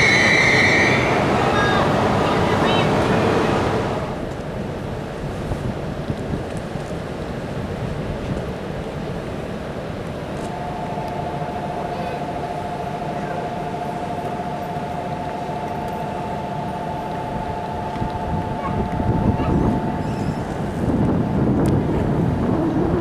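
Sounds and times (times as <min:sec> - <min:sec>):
train rumbling past: 0:00.0 - 0:23.0
wind noise on microphone: 0:02.9 - 0:23.0
two-pitched electronic tone: 0:10.5 - 0:20.8.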